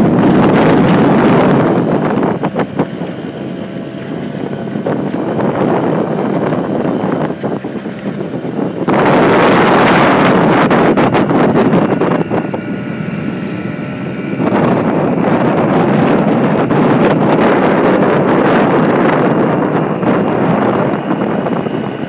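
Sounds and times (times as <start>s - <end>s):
outboard motor running: 0.0s - 22.0s
wind buffeting microphone: 0.0s - 22.0s.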